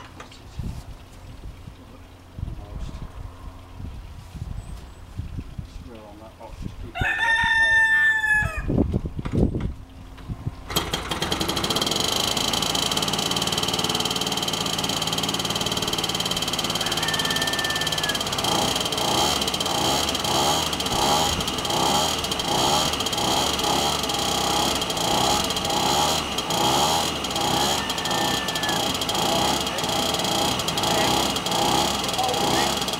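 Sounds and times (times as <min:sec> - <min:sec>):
rooster crowing: 0:06.9 - 0:08.8, 0:16.6 - 0:18.5, 0:27.4 - 0:29.0
model plane engine running: 0:10.7 - 0:32.9.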